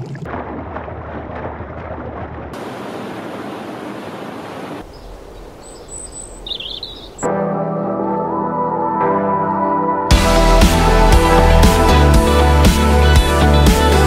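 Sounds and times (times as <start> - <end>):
bird chirps: 4.8 - 7.3
music: 7.3 - 14.0.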